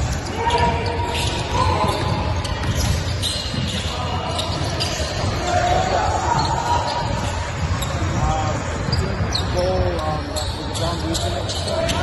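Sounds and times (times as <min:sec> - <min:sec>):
basketball bouncing: 0:00.0 - 0:09.5
players' voices: 0:00.0 - 0:12.0
sneaker squeak: 0:00.0 - 0:12.0.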